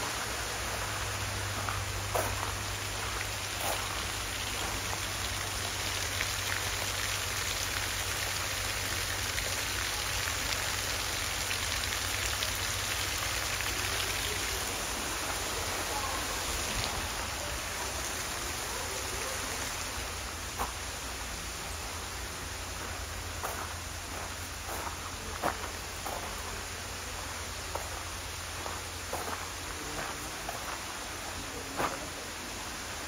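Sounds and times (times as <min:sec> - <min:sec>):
falling water hiss: 0:00.0 - 0:33.0
faint drip-like ticks: 0:22.8 - 0:30.9.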